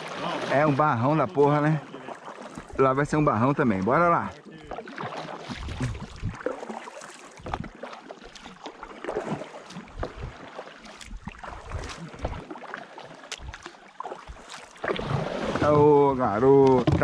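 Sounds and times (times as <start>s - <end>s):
paddle splashing in water: 0.0s - 17.0s
dull low thumps: 5.6s - 6.4s.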